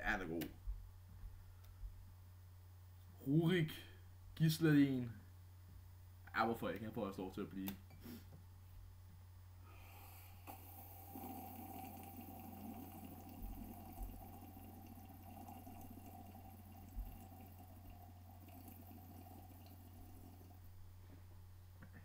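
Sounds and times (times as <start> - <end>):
low electrical hum: 0.0 - 22.0
person drinking and swallowing: 9.9 - 20.7.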